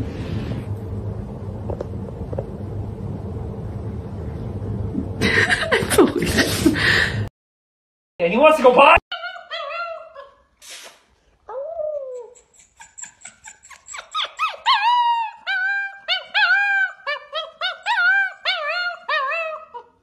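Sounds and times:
pup howling and yipping: 9.1 - 10.5, 11.5 - 20.0.

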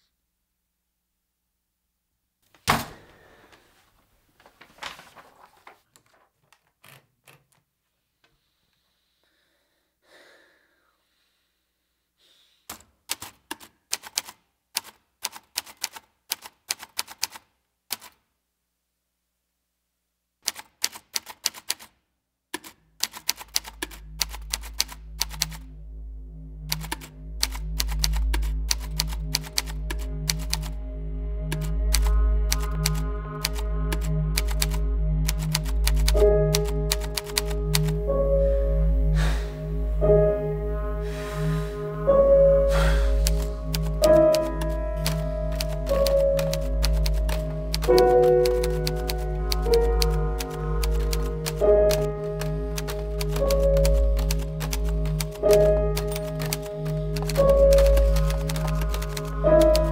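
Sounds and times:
typewriter key clacks: 12.7 - 18.2, 20.4 - 21.9, 22.6 - 25.6, 43.3 - 59.9
music with low drone: 23.4 - 59.9.

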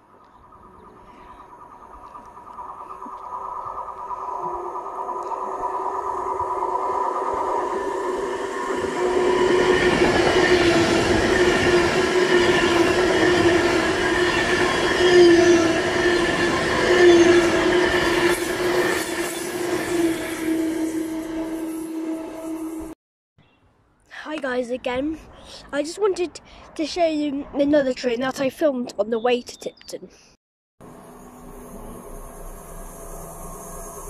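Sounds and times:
electric train passing at speed: 0.0 - 23.0, 30.8 - 34.0
high whine of train on rails: 0.0 - 23.0, 30.8 - 34.0.

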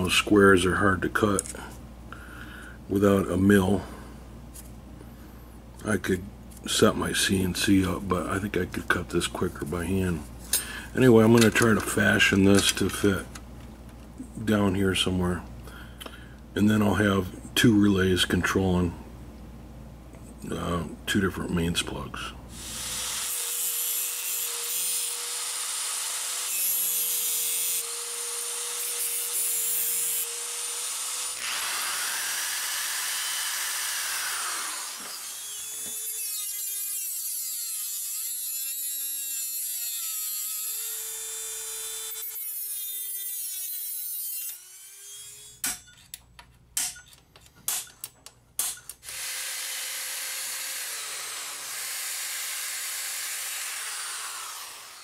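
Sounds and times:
angle grinder cutting metal: 22.6 - 45.8, 48.6 - 55.0
rotary tool cutting metal: 22.6 - 46.1, 48.6 - 55.0
cordless drill drilling: 30.2 - 36.6, 49.0 - 55.0.

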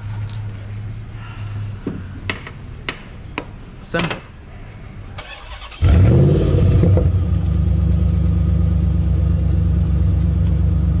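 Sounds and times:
vehicle engine starting and idling: 5.2 - 11.0.

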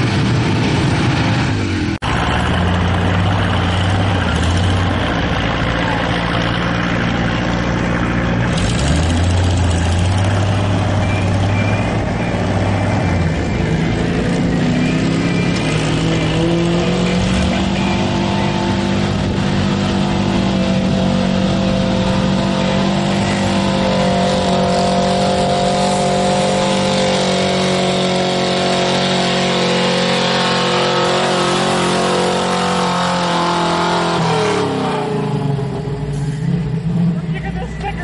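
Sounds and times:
truck engine at full throttle: 0.0 - 38.0.

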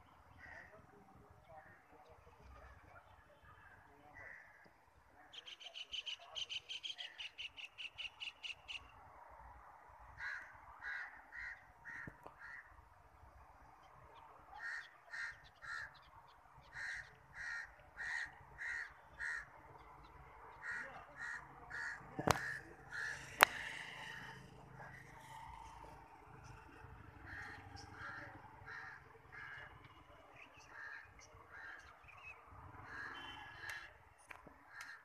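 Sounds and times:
birds calling: 13.8 - 35.0.

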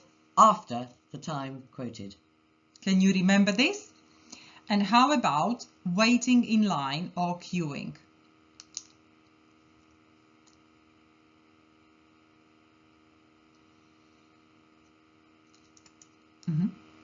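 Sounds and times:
electrical hum: 0.0 - 17.0
faint clicks: 8.6 - 9.0.

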